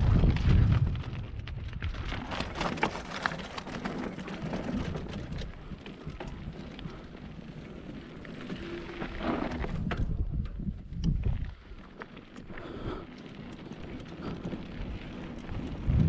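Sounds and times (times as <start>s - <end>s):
tyres crunching over gravel: 0.0s - 10.2s
bike clattering and rattling: 0.0s - 16.0s
low wind rumble on microphone: 0.0s - 16.0s.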